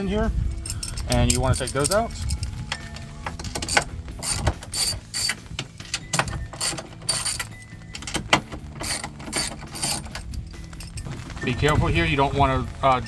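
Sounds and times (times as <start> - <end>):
socket ratchet clicking: 0.6 - 11.0.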